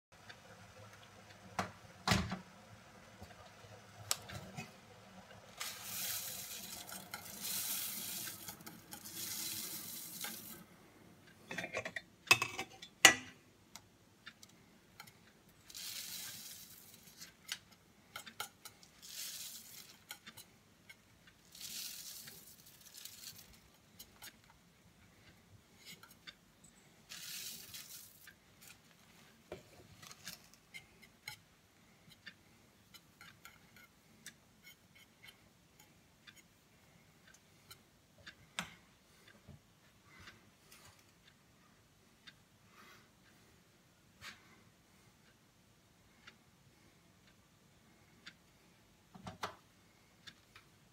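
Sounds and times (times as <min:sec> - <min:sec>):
oat flakes poured from plastic box: 0:05.6 - 0:10.5, 0:19.0 - 0:19.9, 0:21.5 - 0:23.6, 0:27.1 - 0:28.2
wire whisk swishing in water: 0:05.6 - 0:10.6.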